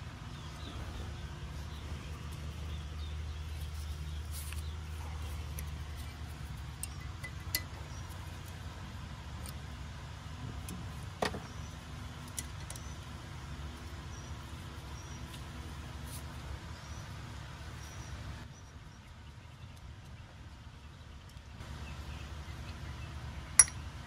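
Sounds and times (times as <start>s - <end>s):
steady low hum: 0.0s - 24.0s
metal tools clinking on metal: 23.6s - 23.8s.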